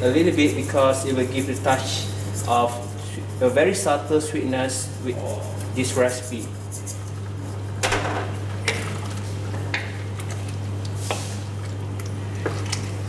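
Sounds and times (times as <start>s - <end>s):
spatula stirring wet gravy: 0.0s - 7.7s
steady low hum: 0.0s - 13.0s.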